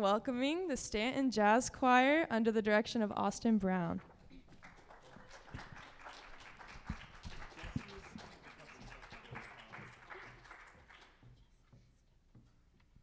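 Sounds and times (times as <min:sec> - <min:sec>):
audience applauding: 0:04.0 - 0:11.4.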